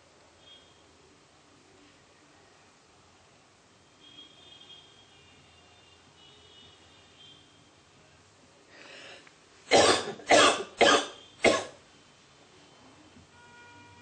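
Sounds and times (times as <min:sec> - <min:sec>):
breath in: 0:08.7 - 0:09.3
man coughing: 0:09.7 - 0:11.8.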